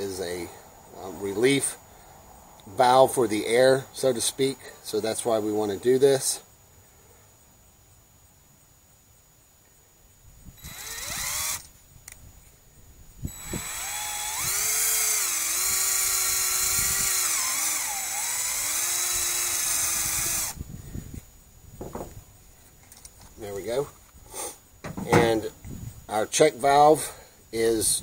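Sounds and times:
cordless drill whining: 10.6 - 11.7, 13.3 - 20.6.

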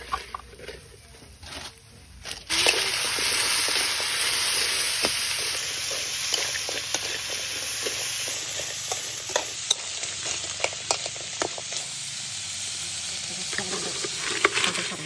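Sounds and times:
crabs sizzling in a wok: 0.0 - 15.0
spatula scraping a wok: 2.6 - 15.0.

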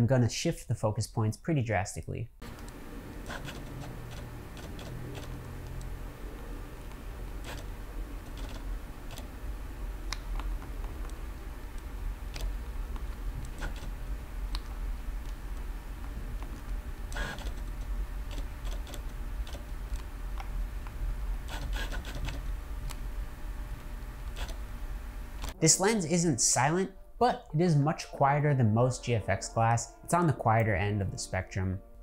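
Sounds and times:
lens autofocus motor whirring: 2.4 - 14.1, 16.5 - 20.1, 21.4 - 23.1, 24.2 - 24.7.

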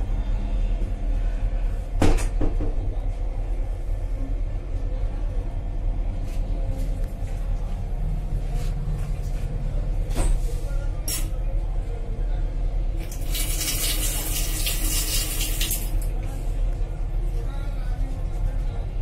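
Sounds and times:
tap water running into steel sink: 13.0 - 16.1.

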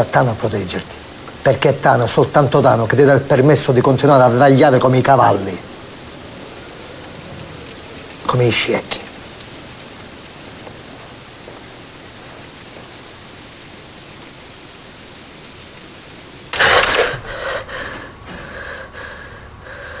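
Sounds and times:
steady hiss: 0.0 - 20.0
sudden loud noise: 16.5 - 17.4.

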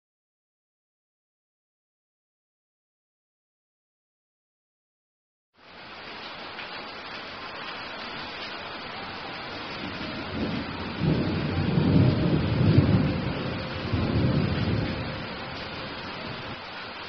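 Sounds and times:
rain falling: 5.6 - 17.0
thunder rumbling: 8.8 - 17.0.

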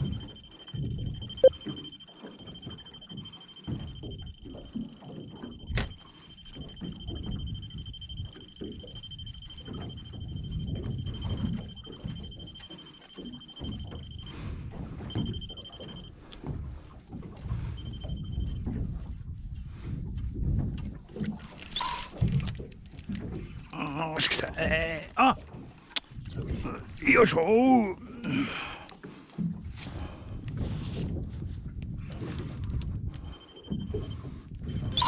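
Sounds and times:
high electronic alarm tone: 0.0 - 14.4, 15.0 - 16.1, 33.3 - 35.0
water: 0.0 - 35.0
wind: 0.0 - 35.0.

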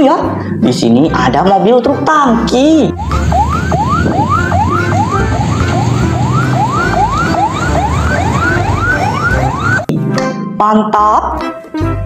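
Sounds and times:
electronic siren whooping: 2.9 - 9.9.

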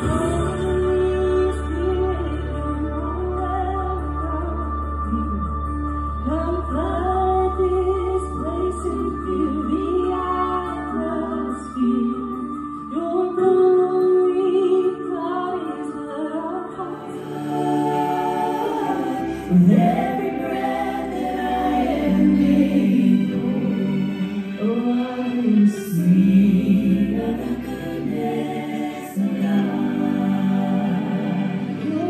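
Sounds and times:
women singing together: 0.0 - 4.6, 6.2 - 32.0.

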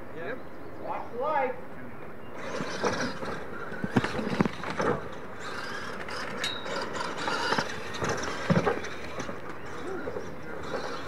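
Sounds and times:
toy truck motors whining: 2.4 - 11.0.

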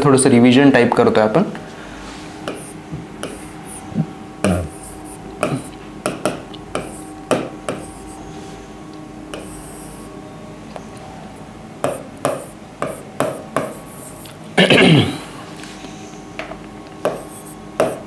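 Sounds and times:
faint steady hum: 0.0 - 18.0
pen tapping on a screen: 2.5 - 3.5, 5.4 - 7.9, 11.8 - 13.8, 17.0 - 18.0.

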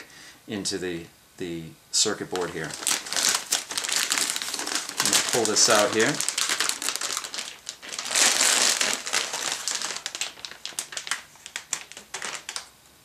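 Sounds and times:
plastic bag crinkling: 2.3 - 12.7.

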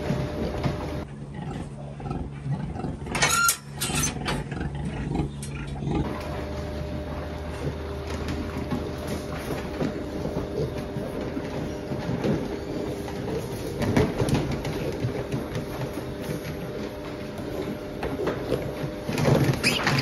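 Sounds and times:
pigs grunting and snuffling: 0.0 - 20.0
steady mechanical hum: 0.0 - 20.0
piglet squealing: 19.4 - 20.0.

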